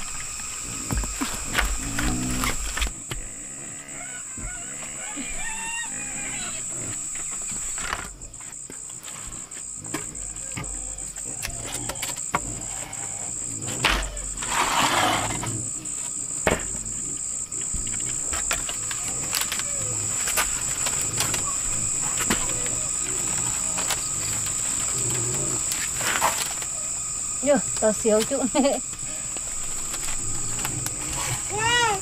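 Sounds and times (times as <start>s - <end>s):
high-pitched insect drone: 0.0s - 32.0s
rustling scrape: 14.4s - 15.6s, 23.0s - 26.7s.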